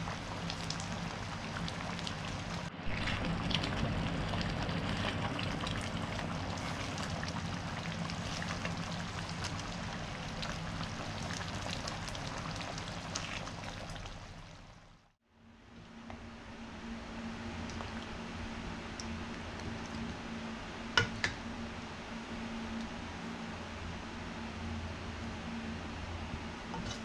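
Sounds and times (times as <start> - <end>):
sauce simmering and bubbling: 0.0 - 15.1, 17.6 - 20.1.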